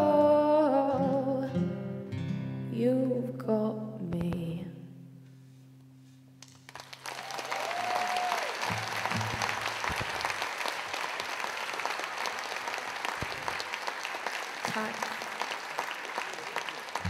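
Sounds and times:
audience applauding: 6.4 - 17.0.

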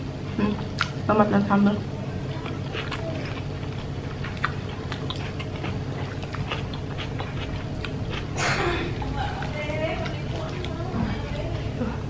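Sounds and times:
steady low hum: 0.0 - 12.0
wet chewing mouth smacks: 0.5 - 1.0, 2.3 - 11.2.

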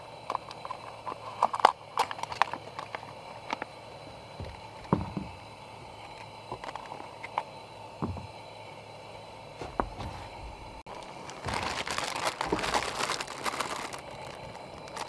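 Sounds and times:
soft thuds: 8.0 - 8.3, 9.6 - 10.8.

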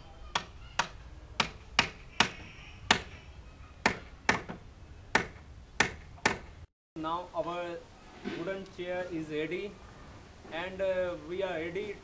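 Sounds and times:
hammer striking nails into wood: 3.8 - 6.5.

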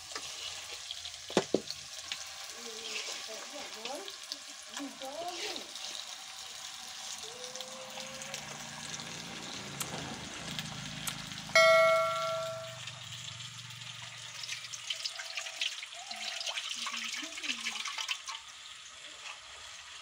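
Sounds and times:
pork sizzling: 0.0 - 20.0
notification ding: 11.6 - 12.8.

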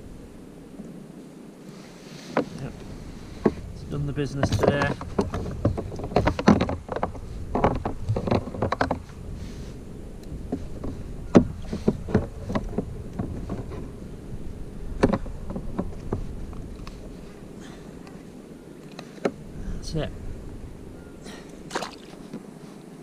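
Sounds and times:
fish unhooking handling noises: 4.4 - 9.2.

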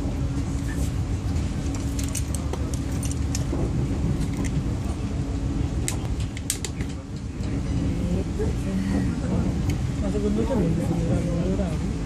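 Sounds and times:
train rumble and hum: 0.0 - 12.0
sharp clicks and rattles: 1.6 - 3.6.

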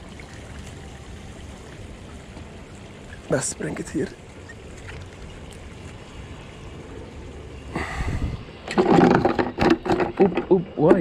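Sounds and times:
wind rumbling on microphone: 4.0 - 10.8.

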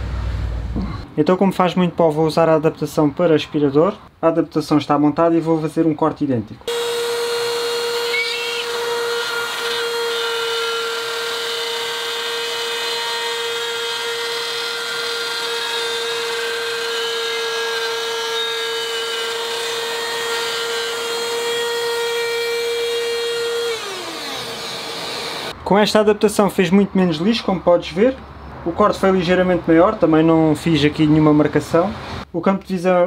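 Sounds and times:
rotary cutter whining: 6.7 - 25.5.

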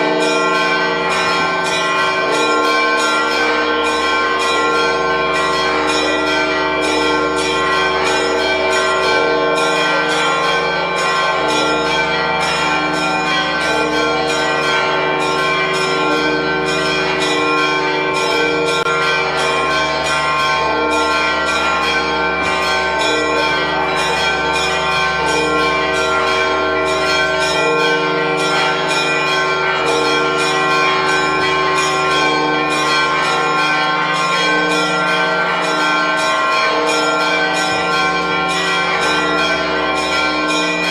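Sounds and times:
church bells pealing: 0.0 - 40.9.

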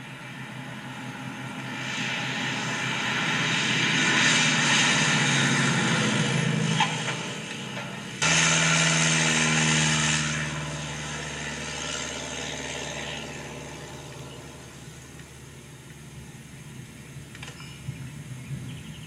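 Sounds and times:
propeller plane engine droning: 0.0 - 19.0.

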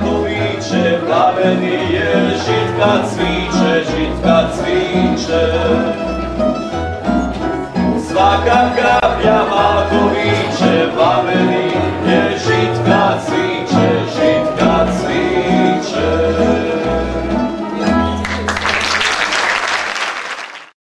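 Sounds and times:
folk music on plucked strings: 0.0 - 18.5
audience applause: 18.2 - 20.8.

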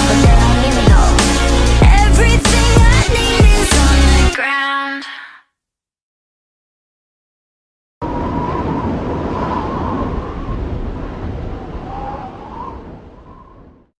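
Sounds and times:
loud rushing rumbling noise: 8.0 - 13.8.

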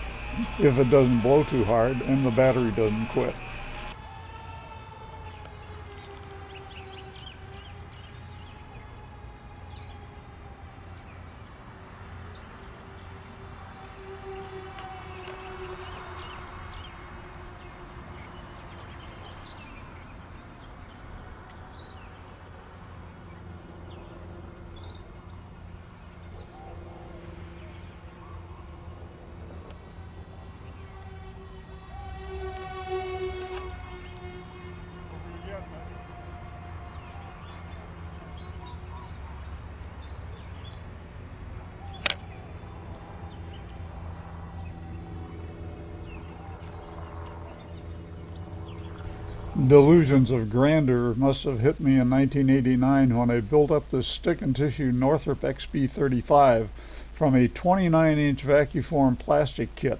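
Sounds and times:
electric motors whining: 0.0 - 11.0, 12.1 - 50.5
lower motor tone: 0.0 - 11.4, 12.1 - 54.0
birds chirping: 0.0 - 59.9
sharp click: 42.0 - 42.2.

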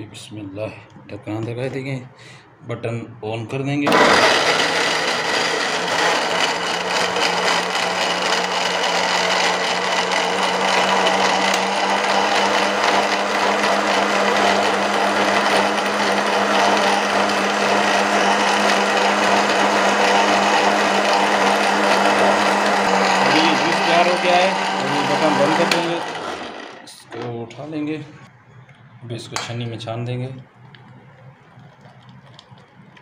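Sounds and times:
electric mixer grinder whining: 3.9 - 27.0.

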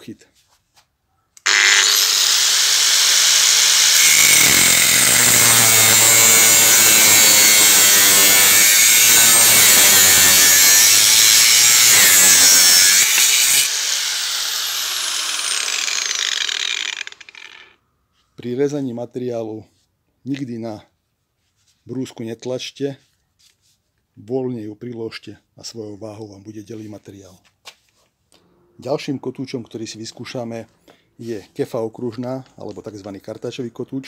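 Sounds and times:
angle grinder cutting steel: 1.4 - 17.8
grinder motor winding down: 1.4 - 17.8.

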